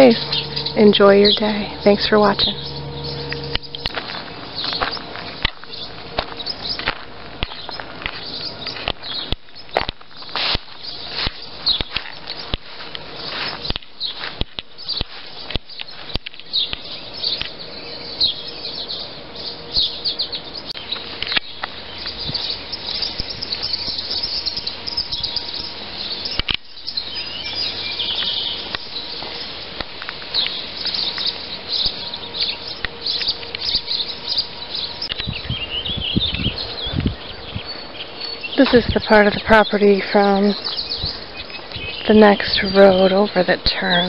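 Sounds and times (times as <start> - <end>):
footsteps through tall grass: 0.0 - 16.8, 20.8 - 35.4
songbirds chirping: 0.0 - 44.0.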